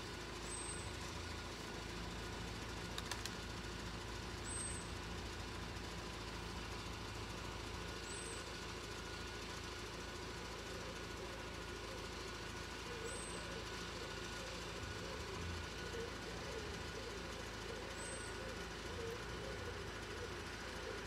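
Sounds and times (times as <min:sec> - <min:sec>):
low background hum: 0:00.0 - 0:21.0
faint clicks: 0:02.9 - 0:03.4.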